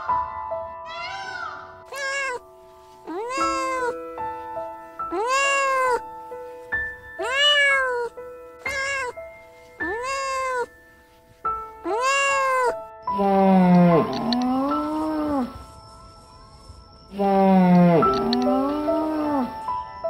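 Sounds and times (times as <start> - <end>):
background music with held notes: 0.0 - 20.0
cat meowing: 1.9 - 2.4, 3.0 - 4.0, 5.1 - 6.1, 7.1 - 9.2, 9.8 - 10.8, 11.8 - 15.6, 17.2 - 19.7.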